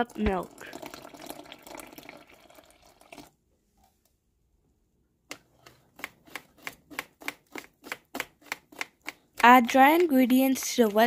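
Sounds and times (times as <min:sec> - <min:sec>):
milk pouring: 0:00.0 - 0:03.4
whisk clicking against bowl: 0:06.0 - 0:11.0.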